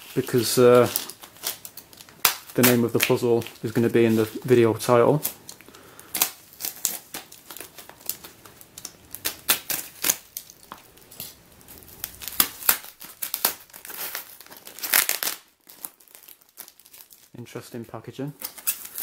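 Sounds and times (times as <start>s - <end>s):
plastic wrapping tearing: 0.0s - 19.0s.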